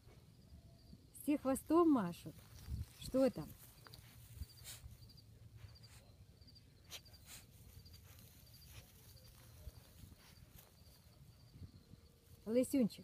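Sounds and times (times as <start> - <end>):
insect chirping: 0.0 - 1.7, 2.3 - 12.8
clicks and rustles in grass: 1.6 - 5.2, 6.9 - 13.0.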